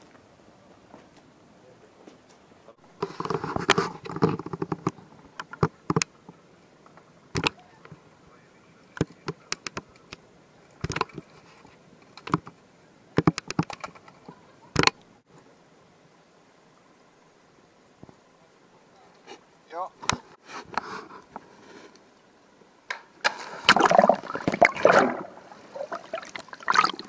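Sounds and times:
sharp clicks and knocks: 9.0 - 10.2, 10.8 - 11.3, 13.2 - 15.0.

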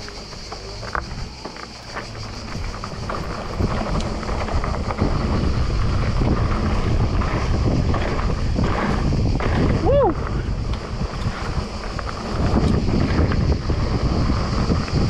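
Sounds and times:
bike rattling over bumps: 0.0 - 15.0
tyre rumble on dirt trail: 0.0 - 15.0
wind buffeting microphone: 0.0 - 15.0.

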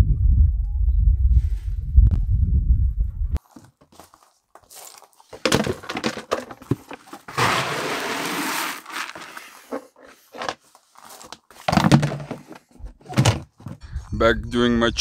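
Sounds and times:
bucket knocks and rustles: 5.3 - 13.8
dry pellets rattling and pouring: 5.4 - 9.7.

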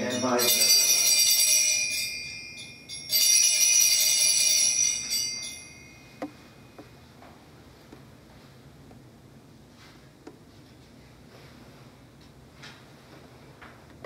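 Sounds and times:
altar bells ringing: 0.0 - 6.7.

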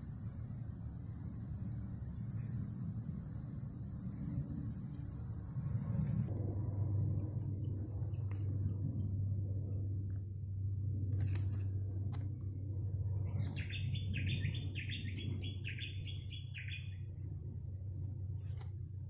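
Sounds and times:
steady low hum: 0.0 - 19.0
bird chirping: 13.3 - 17.1.

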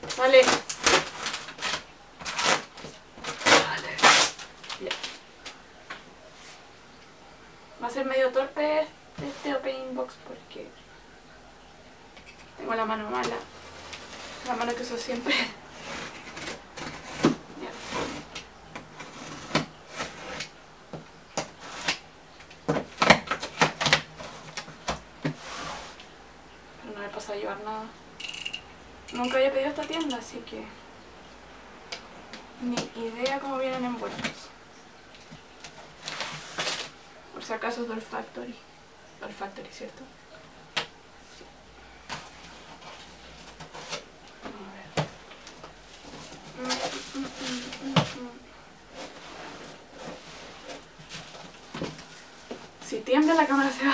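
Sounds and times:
cardboard rustling and scraping: 0.0 - 5.2, 9.2 - 9.7, 13.1 - 20.6, 21.4 - 22.1, 22.7 - 26.1, 35.6 - 37.0, 42.1 - 44.6, 45.6 - 53.6
blade scraping cardboard: 19.0 - 20.5.

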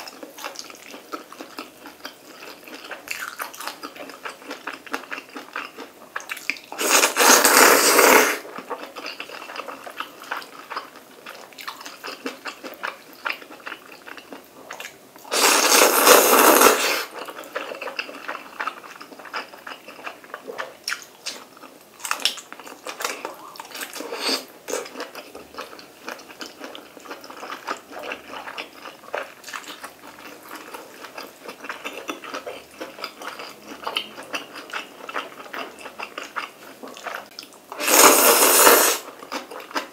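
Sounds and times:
wet chewing and smacking: 0.0 - 6.8, 17.2 - 24.0, 24.7 - 37.6
loud noodle slurps: 6.8 - 8.5, 15.3 - 17.2, 37.8 - 39.1.

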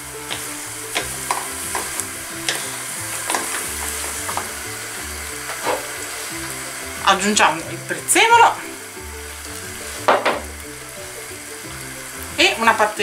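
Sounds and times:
wooden spoons scraping a pan: 0.0 - 6.7, 9.2 - 11.3
background music: 0.0 - 13.0
pasta sizzling in a frying pan: 0.0 - 13.0.

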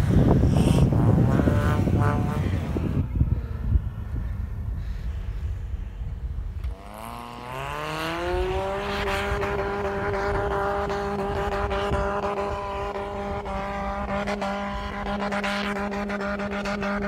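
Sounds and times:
car engine revving: 0.0 - 4.2, 6.6 - 17.0.

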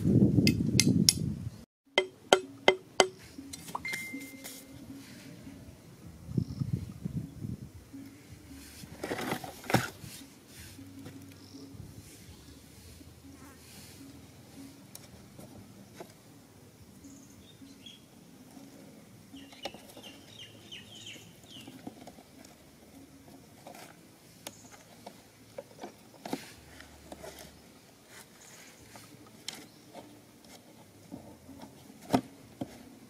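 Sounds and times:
bird chirps: 19.3 - 21.8.

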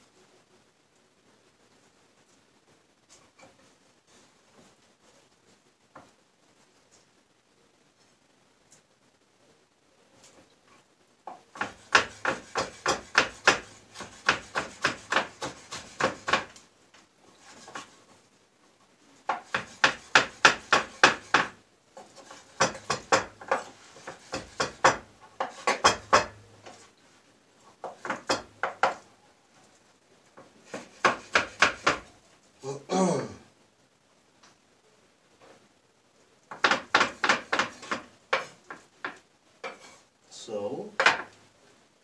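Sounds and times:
knife chopping on wooden board: 11.6 - 16.6, 19.3 - 21.6, 22.2 - 26.4, 30.7 - 32.1, 36.5 - 39.9.

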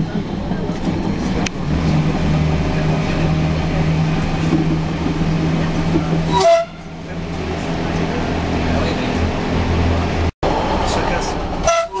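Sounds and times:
railcar engine and rail drone: 0.0 - 12.0
train horn toot: 6.3 - 7.0, 11.6 - 12.0.

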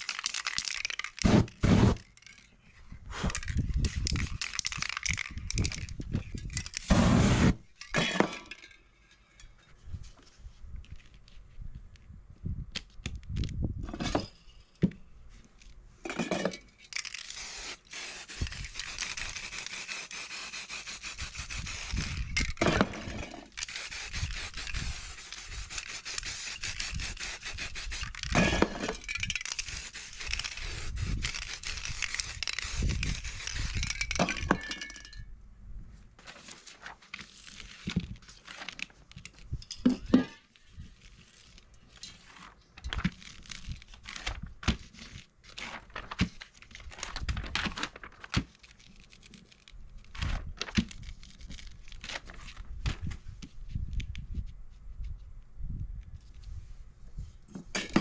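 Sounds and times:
spray paint can hissing: 0.0 - 2.0, 6.6 - 7.6, 17.0 - 22.6, 23.6 - 28.4, 29.1 - 34.2
paper rustling and rubbing: 17.1 - 22.6, 23.5 - 28.3, 29.4 - 33.9, 40.6 - 52.7.

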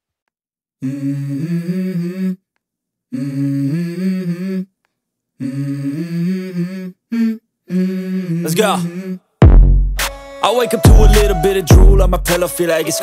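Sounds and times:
person humming melody: 0.8 - 2.4, 5.4 - 9.3, 10.4 - 13.0.

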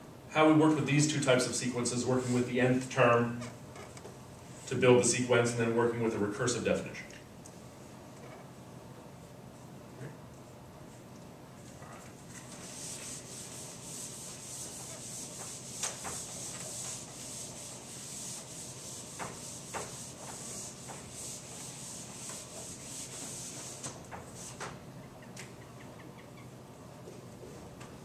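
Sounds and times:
eraser rubbing on whiteboard: 12.3 - 24.7.

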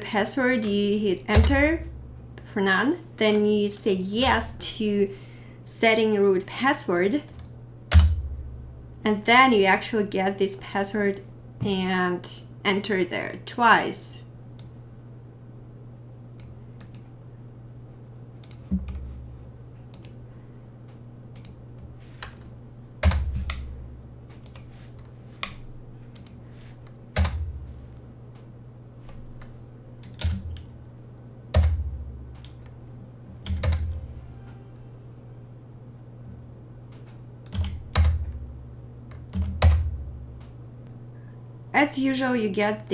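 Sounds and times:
low hum: 0.0 - 13.5, 14.2 - 42.4
heavy keystrokes thumping: 1.3 - 1.9, 7.9 - 8.5, 23.0 - 23.8, 27.2 - 27.7.

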